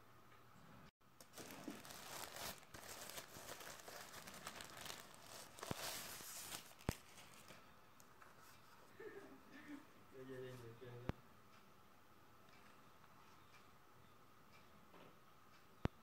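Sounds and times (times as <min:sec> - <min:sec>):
tissue paper crinkling: 0:01.2 - 0:07.6.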